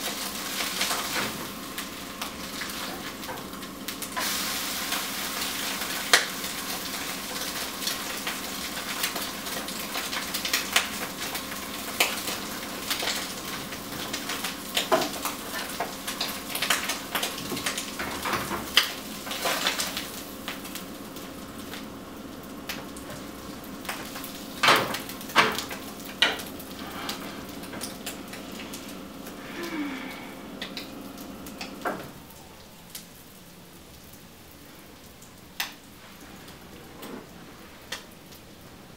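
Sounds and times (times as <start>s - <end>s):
food sizzling in a skillet: 0.0s - 18.0s, 18.7s - 30.0s.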